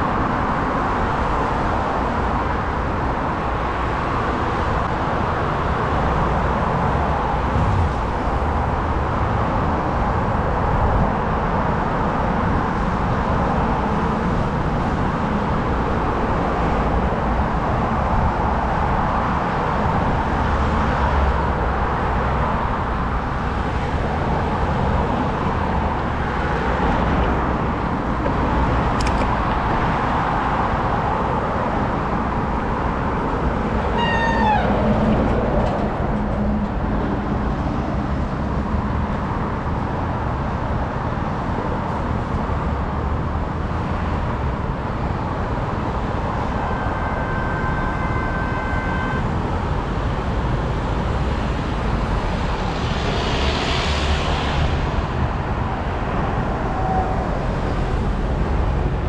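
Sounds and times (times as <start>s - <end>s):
street traffic noise: 0.0s - 59.0s
short falling squeal: 34.0s - 34.8s.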